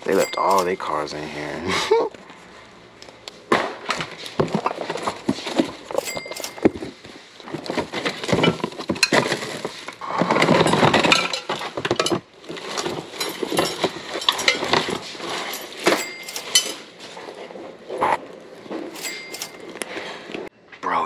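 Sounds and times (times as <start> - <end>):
objects clinking and knocking: 0.0 - 0.8, 3.9 - 17.8, 18.7 - 19.8
plastic bags rustling: 4.0 - 20.3.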